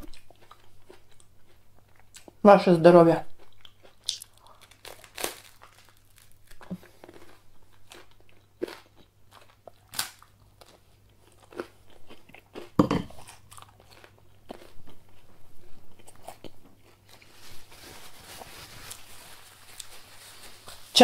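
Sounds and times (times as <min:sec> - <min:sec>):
chewing crisp toast: 0:00.0 - 0:02.4, 0:03.4 - 0:17.3.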